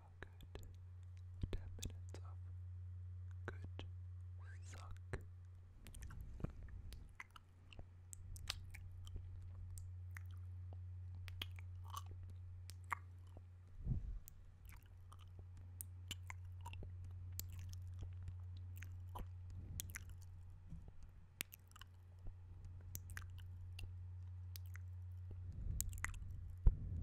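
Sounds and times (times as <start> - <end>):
steady low hum: 0.0 - 27.0
wet mouth clicks and sucking: 5.8 - 13.5, 14.1 - 26.8.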